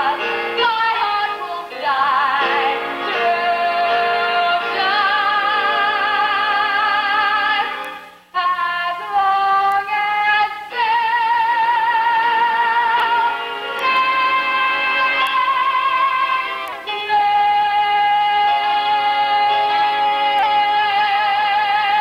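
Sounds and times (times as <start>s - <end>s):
woman singing: 0.0s - 22.0s.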